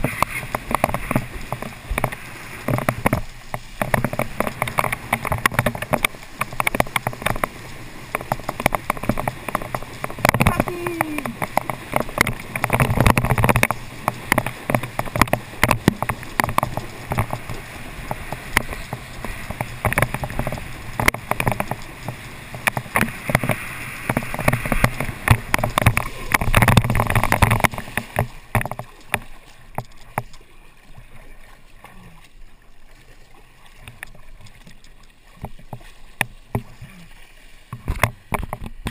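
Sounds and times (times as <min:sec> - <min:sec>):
wind buffeting camera: 0:00.0 - 0:30.4
small splashes and clicks: 0:00.0 - 0:38.9
water rushing and spraying: 0:00.0 - 0:38.9.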